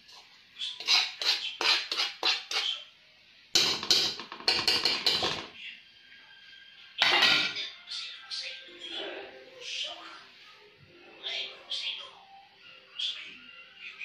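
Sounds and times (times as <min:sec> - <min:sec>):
metal spoon scraping wok: 0:00.0 - 0:02.8.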